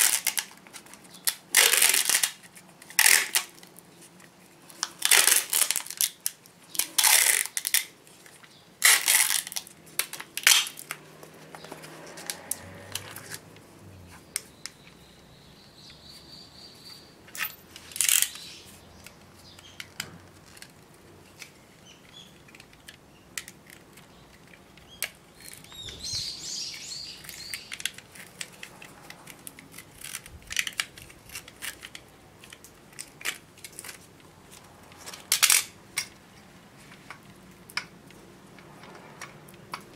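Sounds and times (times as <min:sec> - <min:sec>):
tape ripping off a roll: 0:00.0 - 0:14.5, 0:17.8 - 0:20.9, 0:25.0 - 0:35.8
tape crinkling and handling: 0:00.0 - 0:15.0, 0:16.9 - 0:38.3.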